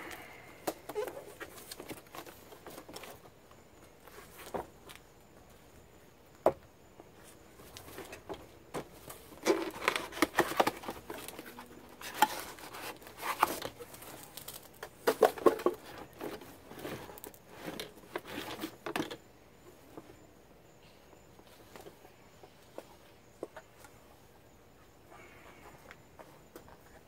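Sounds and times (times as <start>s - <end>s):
cardboard rustling and crinkling: 0.7s - 5.1s, 7.1s - 20.2s.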